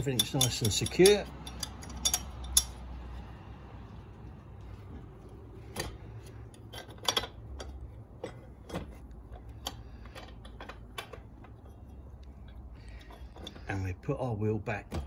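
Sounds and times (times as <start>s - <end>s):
light metallic clicks and taps: 0.0s - 3.0s
low steady background rumble: 0.0s - 15.0s.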